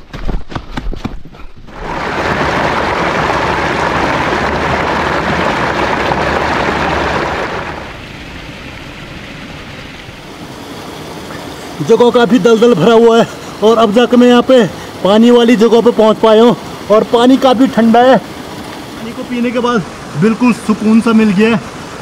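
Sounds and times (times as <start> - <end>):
footsteps: 0.0 - 1.8
mountain stream rushing: 1.7 - 22.0.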